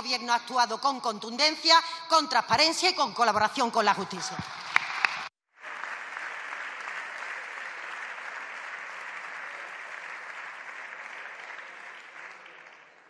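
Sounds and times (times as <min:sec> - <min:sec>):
crowd applauding: 0:04.4 - 0:13.0.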